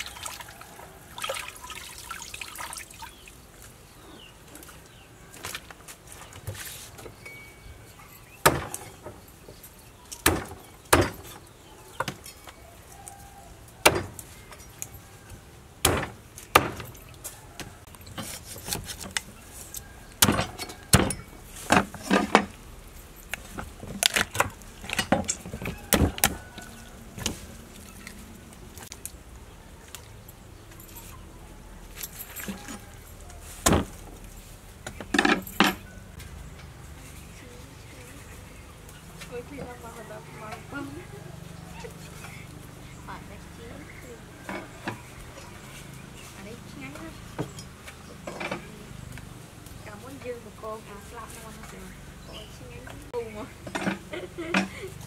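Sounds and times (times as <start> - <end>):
cleaver chopping on wooden block: 8.4 - 8.8, 15.8 - 16.9.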